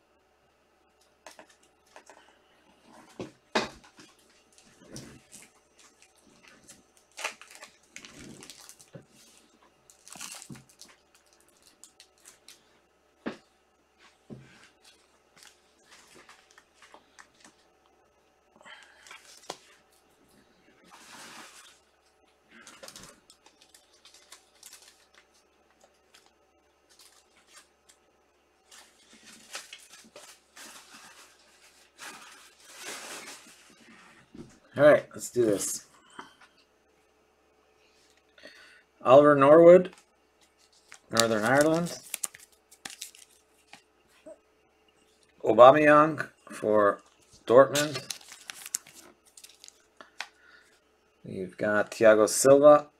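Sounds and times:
rustling plastic packaging: 0:03.8 - 0:12.7, 0:14.0 - 0:17.7, 0:20.8 - 0:34.2, 0:39.8 - 0:43.9, 0:47.1 - 0:50.4
rustling: 0:19.0 - 0:28.0, 0:28.6 - 0:34.4.

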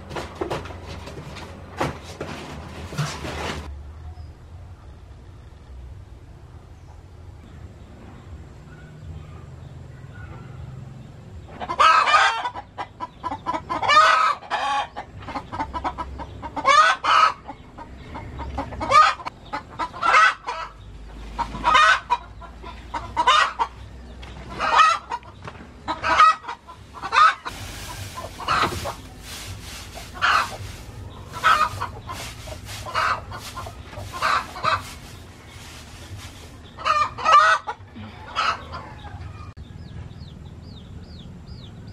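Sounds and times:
chicken clucking: 0:11.4 - 0:40.3.

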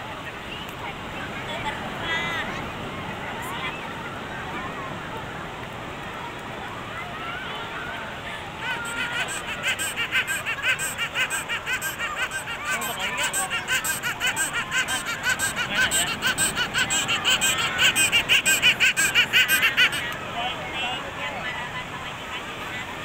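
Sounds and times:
young child giggling: 0:08.6 - 0:20.1.

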